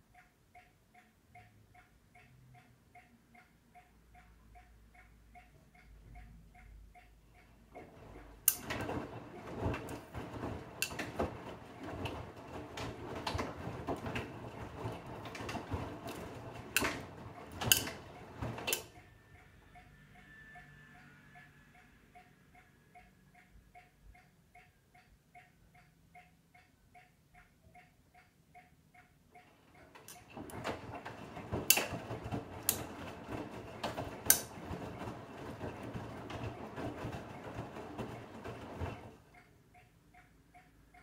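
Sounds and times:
light even ticking: 0:00.0 - 0:08.6, 0:18.7 - 0:30.3, 0:39.3 - 0:41.0
washing machine churning: 0:07.5 - 0:19.2, 0:29.4 - 0:39.6
laundry knocking in drum: 0:08.6 - 0:18.8.

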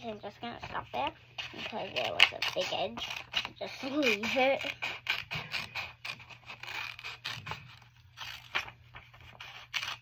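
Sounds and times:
scissors snipping paper: 0:01.4 - 0:10.0
paper rustling: 0:06.6 - 0:10.0.

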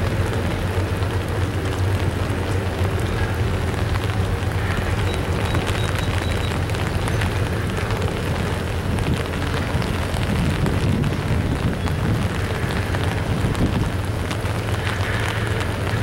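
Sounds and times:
freight train rumbling over bridge: 0:00.0 - 0:16.0.

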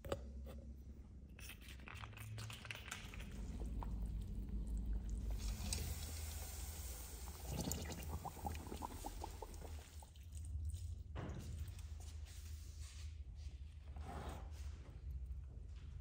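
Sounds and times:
low steady hum: 0:00.0 - 0:13.8
water pouring into plant pot: 0:01.9 - 0:11.0
broth simmering with bubbling pops: 0:03.0 - 0:11.2.

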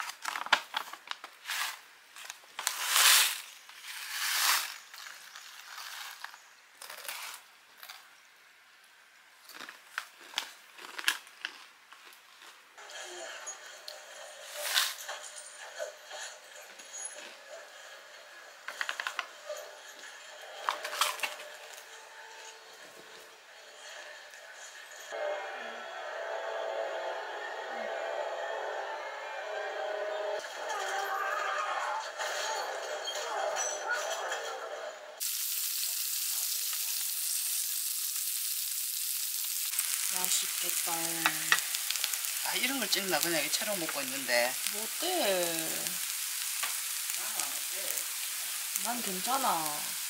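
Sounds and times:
plastic snack bag crinkling: 0:00.0 - 0:08.0, 0:09.4 - 0:12.6, 0:20.6 - 0:21.9, 0:39.3 - 0:50.0
food sizzling in a pan: 0:02.7 - 0:06.6, 0:35.2 - 0:50.0.

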